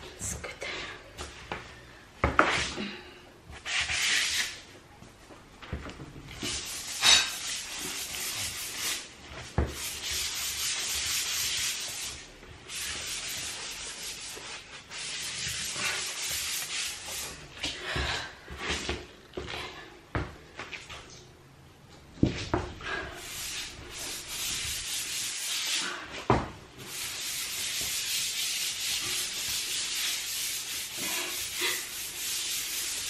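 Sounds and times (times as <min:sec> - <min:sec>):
brush scrubbing wet tiles: 0:06.4 - 0:17.4, 0:23.2 - 0:26.1, 0:26.8 - 0:33.0.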